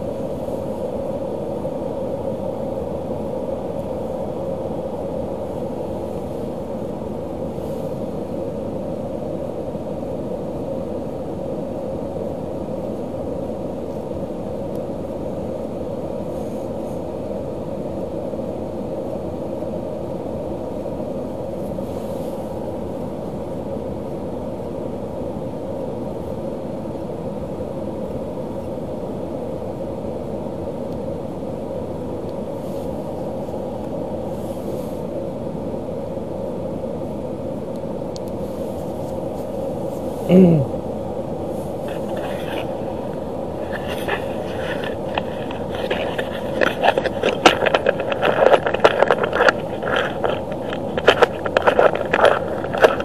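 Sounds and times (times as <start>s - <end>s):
low hum inside car cabin: 0.0s - 53.0s
steady hiss: 0.0s - 53.0s
camera handling scraping and clicking: 41.9s - 53.0s.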